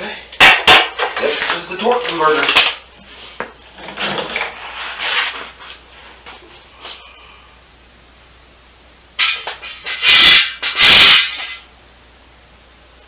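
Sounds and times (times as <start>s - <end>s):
shuffling and scraping: 1.0s - 7.2s.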